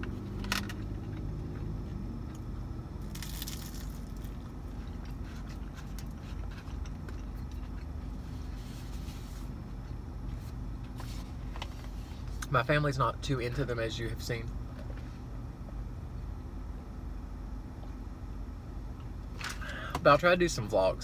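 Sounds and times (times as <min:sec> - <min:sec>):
low hum inside a car: 0:00.0 - 0:21.0
person chewing food: 0:03.0 - 0:08.3.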